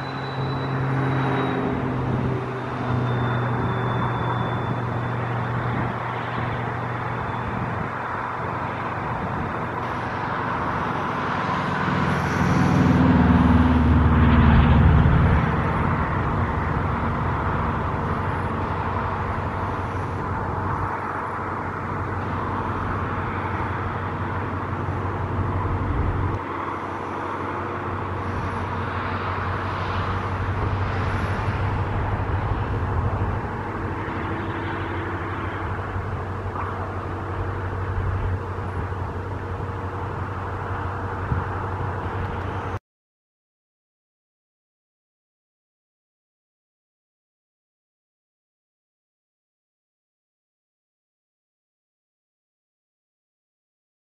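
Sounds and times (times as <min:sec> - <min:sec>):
vehicles passing with rumble: 0:00.0 - 0:42.8.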